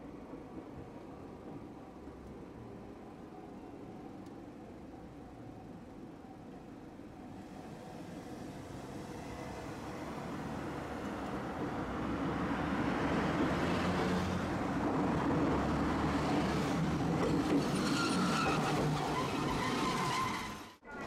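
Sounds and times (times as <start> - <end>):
streetcar wheels rumbling: 6.3 - 21.0
cars driving past: 8.0 - 17.6.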